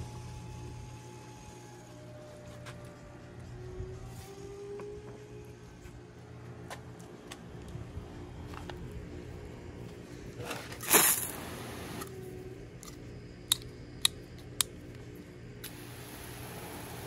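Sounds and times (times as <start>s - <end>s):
steady low hum: 0.0s - 17.0s
hose spray burst: 10.8s - 12.0s.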